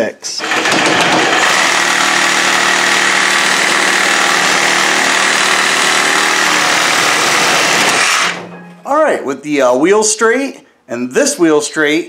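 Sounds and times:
reciprocating saw cutting steel: 0.4s - 8.4s.

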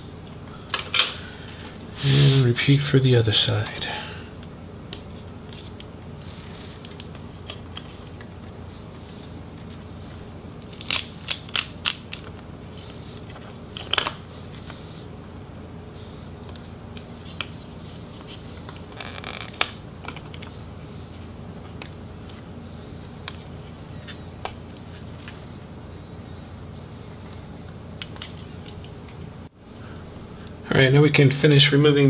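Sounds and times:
steady low hum: 0.0s - 32.0s
scratchy handling rustle: 5.0s - 11.1s.

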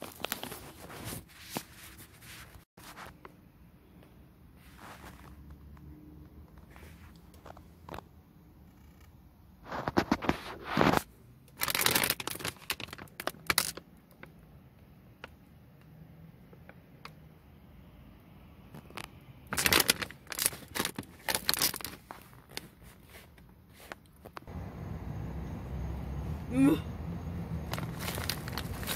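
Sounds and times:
chip bag crinkling: 11.6s - 13.8s, 18.8s - 23.3s, 27.7s - 28.9s.

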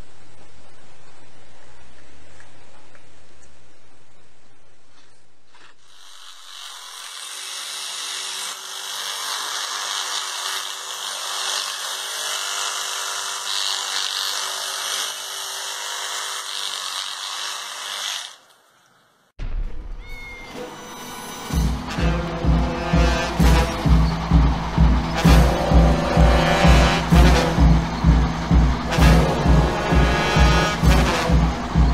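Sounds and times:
electric toothbrush buzzing: 5.8s - 18.6s, 21.1s - 24.4s, 25.1s - 27.8s, 28.5s - 31.9s.

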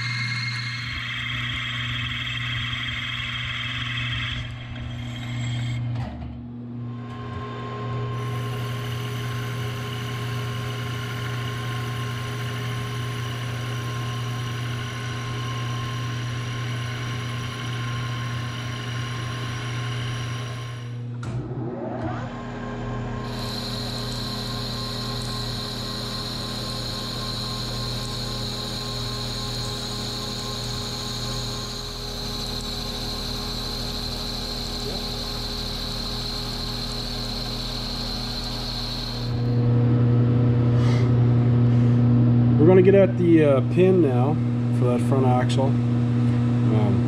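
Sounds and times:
lathe cutting metal: 0.0s - 5.9s, 8.2s - 21.0s, 23.2s - 39.6s
metal lathe motor hum: 0.0s - 6.0s, 6.8s - 40.5s
rising whine: 0.0s - 15.9s, 19.4s - 44.8s.

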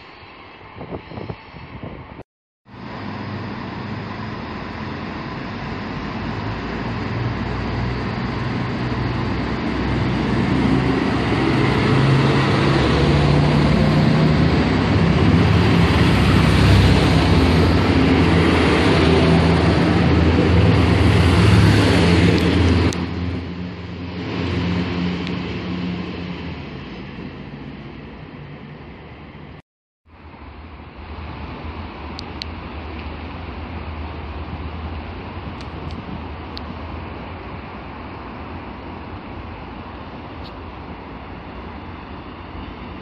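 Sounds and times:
diesel railcar engine drone: 0.0s - 43.0s
train wheel noise: 2.7s - 29.6s.

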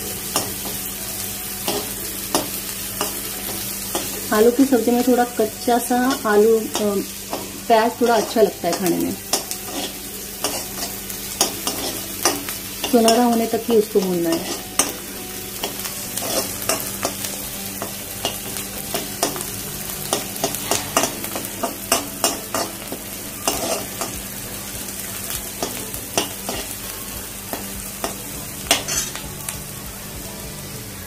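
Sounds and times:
onion sizzling in oil: 0.0s - 31.0s
steel spoon scraping a pan: 6.0s - 15.0s, 15.6s - 19.4s, 20.1s - 24.2s.

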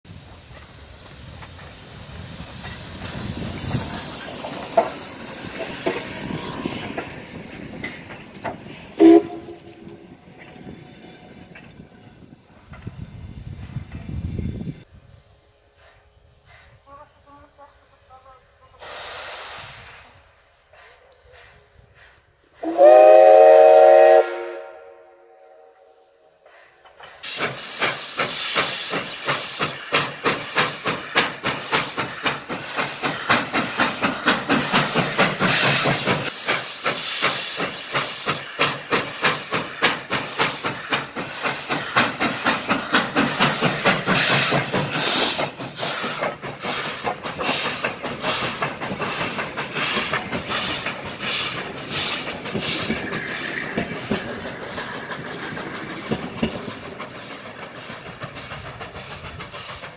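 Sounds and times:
steam hissing: 0.1s - 59.9s
steam locomotive chuffing: 0.1s - 59.9s
steam locomotive whistle: 9.0s - 9.8s, 22.6s - 26.3s.

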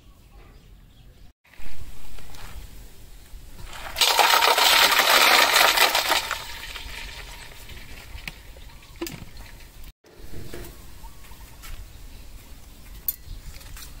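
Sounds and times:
ice clinking against metal: 3.6s - 9.7s
water splashing into steel bowl: 3.6s - 9.9s.

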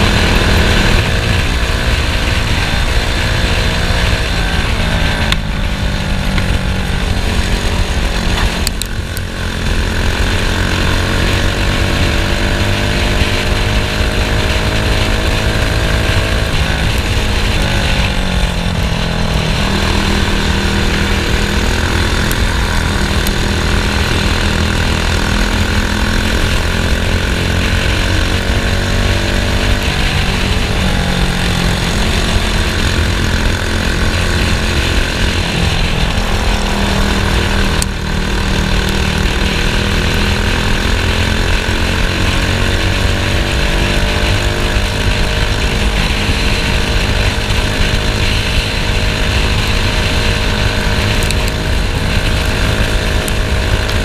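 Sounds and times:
racing kart engine: 0.0s - 54.0s.

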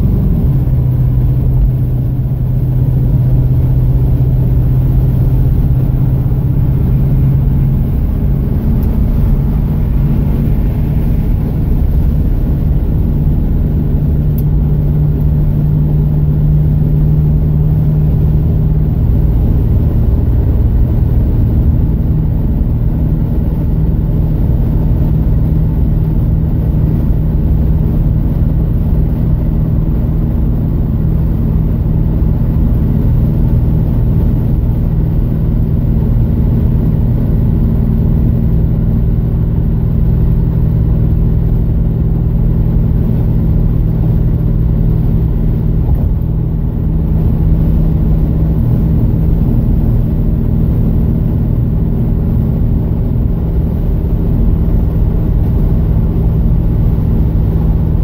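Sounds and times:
low engine hum: 0.0s - 58.0s
tyre and road rumble: 0.0s - 58.0s.

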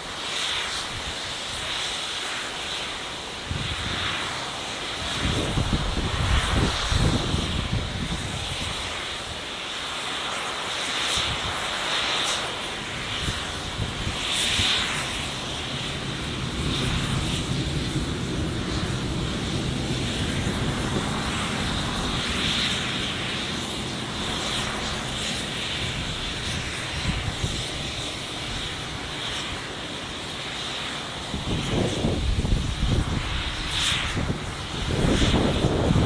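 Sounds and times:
wind buffeting microphone: 5.0s - 9.2s, 13.0s - 29.7s, 30.6s - 36.0s
engine drone: 13.6s - 36.0s.

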